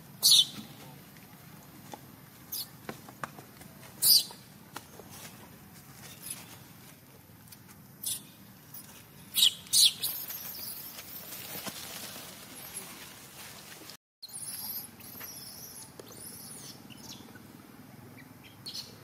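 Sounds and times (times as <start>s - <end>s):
baby monkey squealing: 0.2s - 0.6s, 9.4s - 10.9s, 14.2s - 17.4s.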